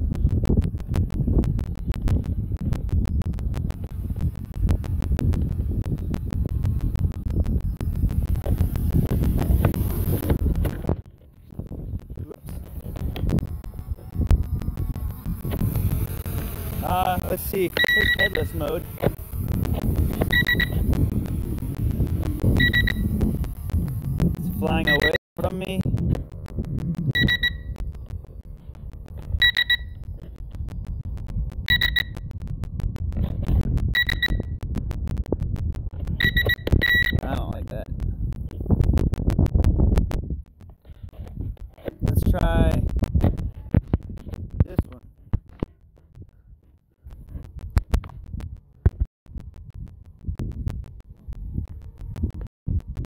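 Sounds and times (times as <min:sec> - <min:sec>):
wind rumble on microphone: 0:00.0 - 0:53.0
short high-pitched electronic beeps: 0:12.4 - 0:19.2, 0:20.0 - 0:21.0, 0:21.6 - 0:25.2, 0:26.9 - 0:28.2, 0:29.3 - 0:33.0, 0:33.8 - 0:37.8.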